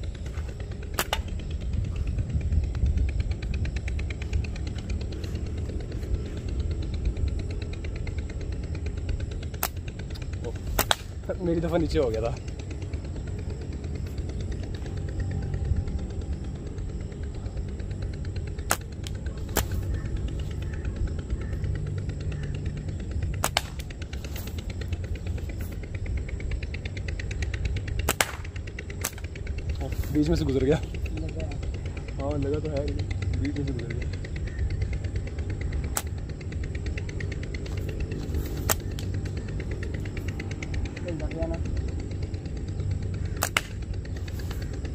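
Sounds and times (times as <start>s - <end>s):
fast even ticking: 0.0s - 44.9s
steady low rumble: 0.0s - 44.9s
slingshot snapping clicks: 1.0s - 1.3s, 9.6s - 11.1s, 18.7s - 19.8s, 23.4s - 23.9s, 28.1s - 29.3s, 35.9s - 36.1s, 38.6s - 39.2s, 43.4s - 43.8s.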